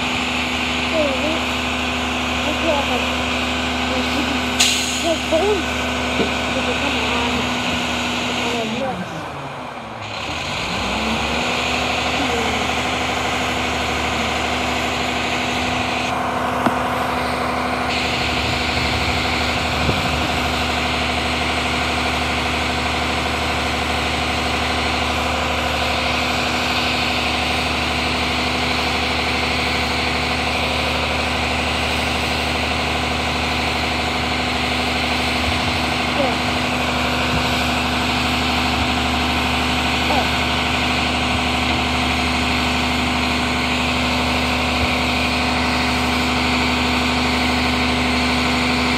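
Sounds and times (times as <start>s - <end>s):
garbage truck engine idling: 0.0s - 48.9s.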